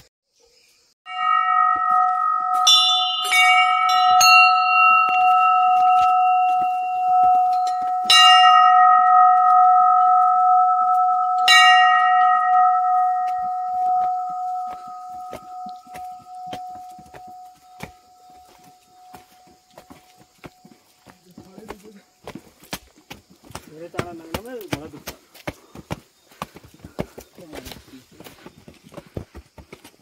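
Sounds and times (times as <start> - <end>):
metal temple bell ringing: 1.1 - 19.6.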